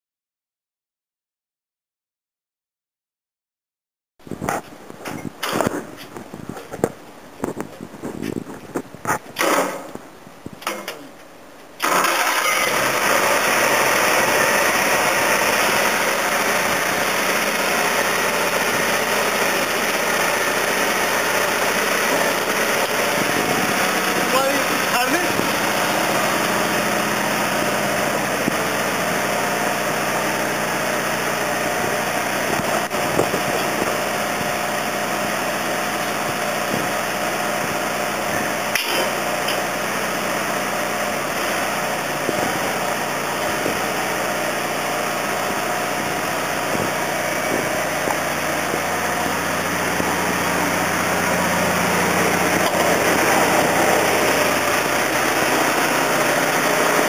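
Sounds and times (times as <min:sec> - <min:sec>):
truck engine running: 0:11.8 - 0:57.0
sharp click: 0:38.7 - 0:39.6.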